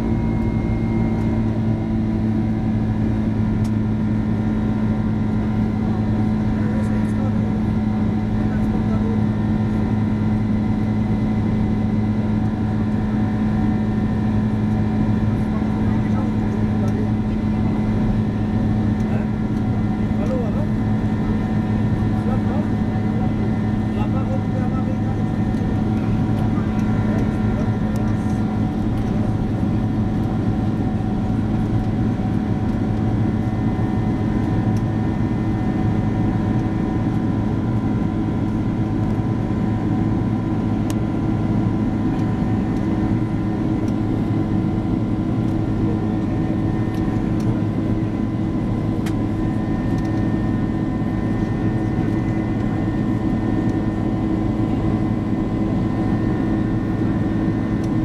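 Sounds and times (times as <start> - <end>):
jet engine drone in cabin: 0.0 - 58.0.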